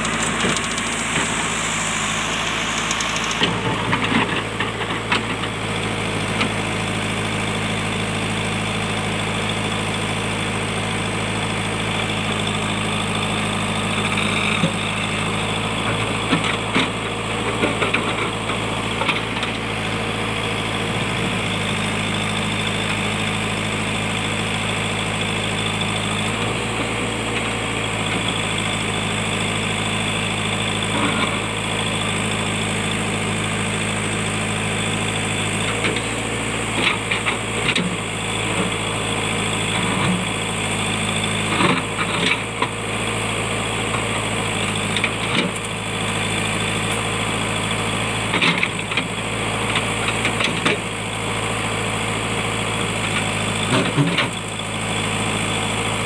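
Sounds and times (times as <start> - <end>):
steel bucket scraping rock: 0.0 - 4.6
high hydraulic whine: 0.0 - 4.8
diesel engine running: 0.0 - 56.0.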